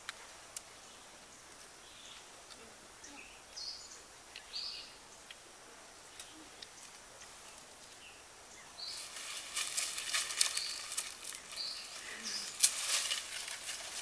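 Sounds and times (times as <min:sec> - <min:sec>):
bird chirps: 0:10.4 - 0:12.6.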